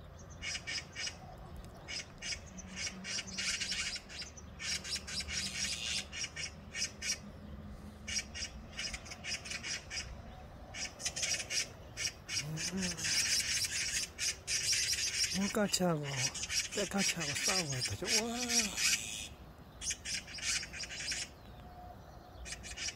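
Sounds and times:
magpies rasping calls: 0:00.3 - 0:07.3, 0:08.0 - 0:22.9.

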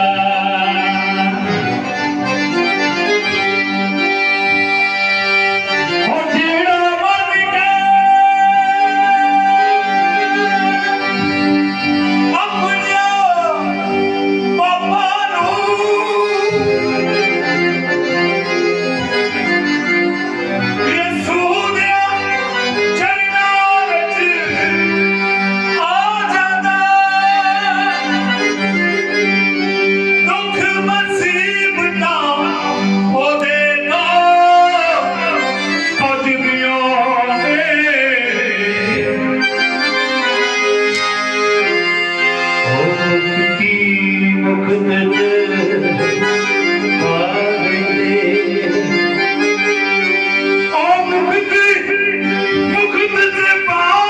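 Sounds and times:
man singing into microphone: 0:00.0 - 0:02.0, 0:05.8 - 0:17.9, 0:20.8 - 0:29.3, 0:30.1 - 0:39.6, 0:42.5 - 0:49.4, 0:50.6 - 0:54.0
electronic keyboard chords: 0:00.0 - 0:54.0.

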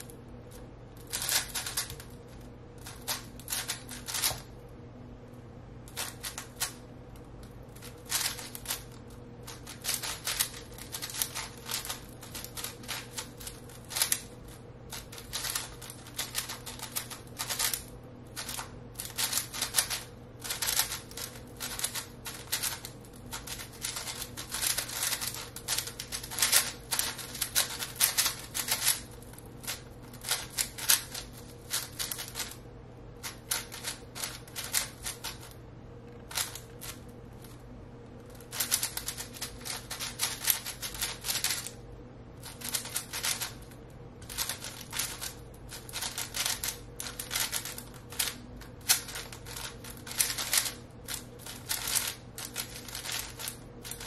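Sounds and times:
faint steady hum: 0:00.0 - 0:54.0
plastic puzzle cube clacking: 0:01.0 - 0:02.1, 0:02.8 - 0:04.5, 0:07.7 - 0:08.9, 0:09.5 - 0:14.3, 0:14.9 - 0:32.6, 0:33.2 - 0:35.5, 0:38.4 - 0:41.7, 0:42.4 - 0:43.6, 0:44.3 - 0:54.0.

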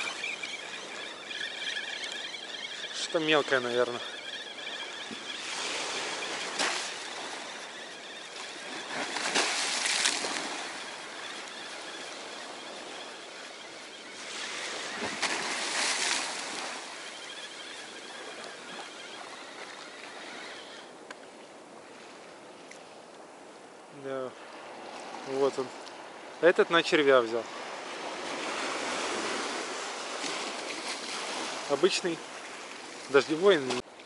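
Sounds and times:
water splashing: 0:00.0 - 0:20.7
small waves breaking on shore: 0:00.0 - 0:34.0.

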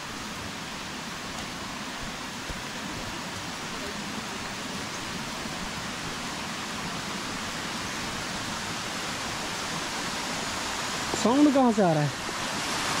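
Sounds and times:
falling water rushing: 0:00.0 - 0:13.0.

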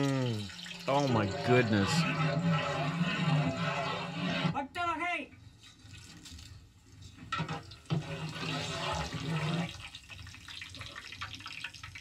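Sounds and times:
water pouring into bucket: 0:00.0 - 0:02.8, 0:05.6 - 0:12.0.

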